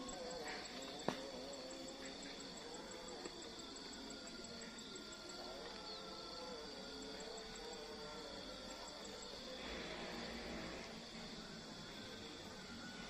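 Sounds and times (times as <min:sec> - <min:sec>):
insect high trill: 0:00.0 - 0:13.0.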